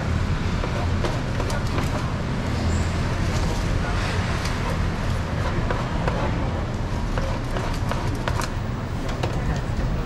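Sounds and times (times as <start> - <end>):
low rumble of street noise: 0.0 - 10.0.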